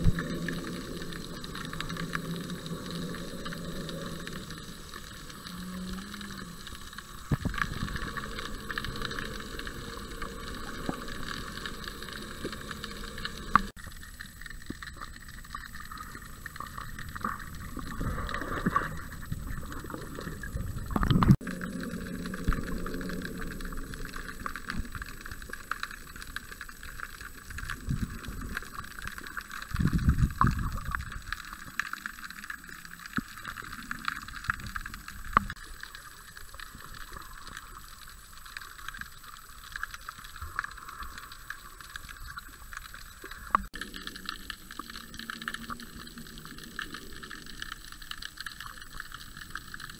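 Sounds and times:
underwater water wash: 0.0s - 49.9s
underwater clicks and knocks: 7.2s - 9.5s, 14.5s - 21.6s.

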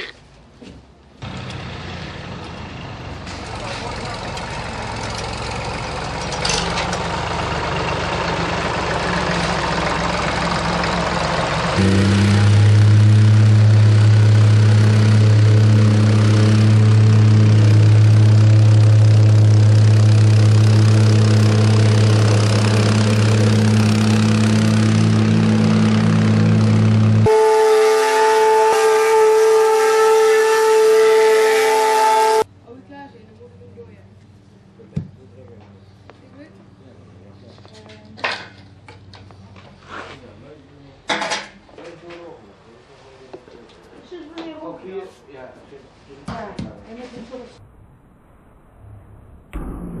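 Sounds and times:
rough tractor engine: 1.2s - 32.4s
plate compactor humming: 3.3s - 32.4s.

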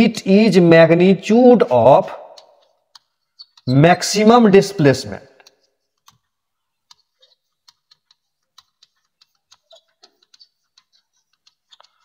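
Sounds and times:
chalk writing on blackboard: 2.6s - 3.8s, 5.6s - 12.0s.

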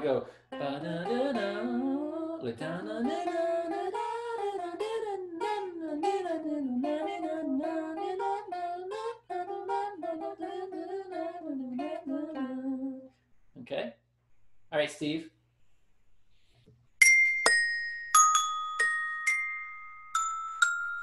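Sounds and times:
person singing wordless melody: 0.0s - 13.2s.

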